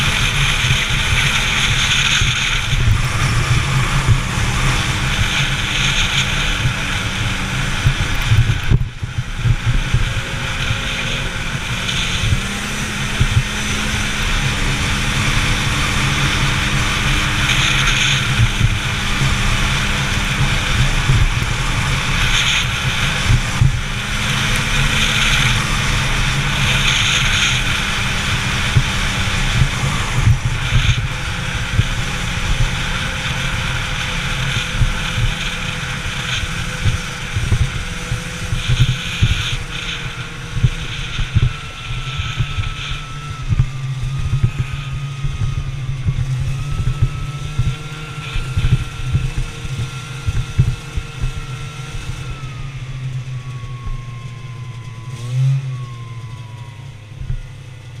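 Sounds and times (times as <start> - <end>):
rushing wind: 0.0 - 58.0
snowmobile engine running: 0.0 - 58.0.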